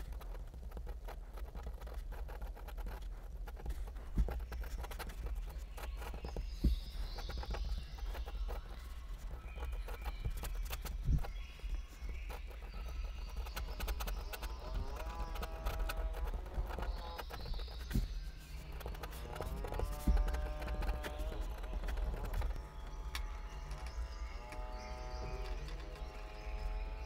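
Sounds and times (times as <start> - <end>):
pen scratching on paper: 0.0 - 22.6.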